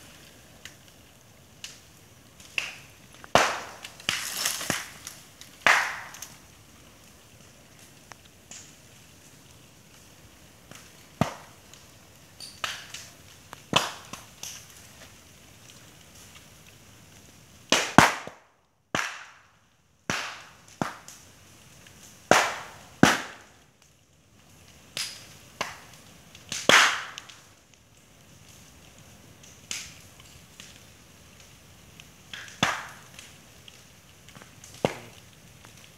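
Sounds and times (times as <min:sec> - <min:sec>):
fire hissing: 0:00.0 - 0:18.2, 0:19.1 - 0:35.9
bamboo bursting with loud bangs: 0:02.6 - 0:06.2, 0:17.7 - 0:19.4, 0:22.3 - 0:23.4, 0:26.6 - 0:27.2, 0:34.7 - 0:35.2.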